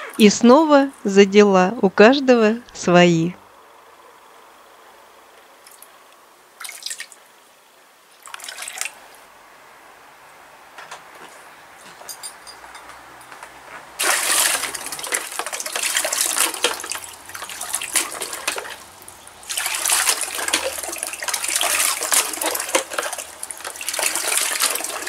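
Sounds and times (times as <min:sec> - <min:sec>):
water gushing and splashing: 0:08.2 - 0:09.0, 0:13.9 - 0:25.0.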